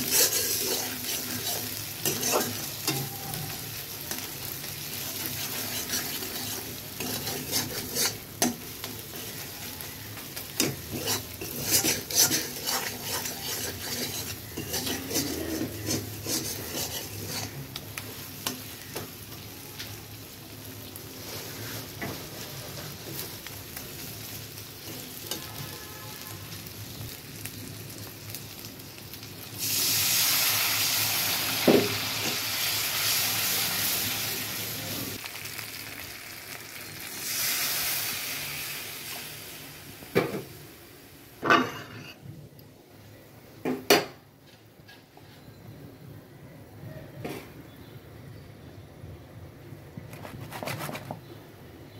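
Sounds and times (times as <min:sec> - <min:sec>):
metal spatula scraping a wok: 0:00.0 - 0:04.3, 0:04.9 - 0:17.8, 0:41.5 - 0:42.2
paste sizzling in a pan: 0:00.0 - 0:42.2.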